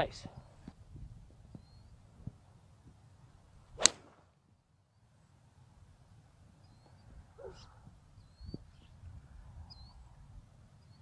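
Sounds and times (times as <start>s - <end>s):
wind noise on microphone: 0.0s - 3.8s, 6.5s - 10.7s
bird chirps: 1.5s - 2.0s, 6.6s - 9.0s.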